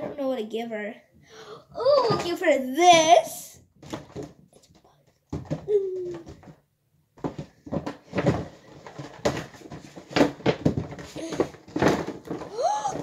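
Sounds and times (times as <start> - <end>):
plastic toys knocking: 5.3 - 6.6, 7.2 - 13.0
rustling: 7.2 - 13.0.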